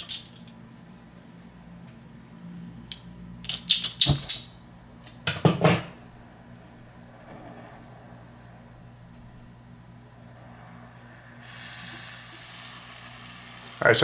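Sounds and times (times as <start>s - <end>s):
loud burst of noise: 6.2s - 14.0s
torch flame popping alight: 6.5s - 14.0s.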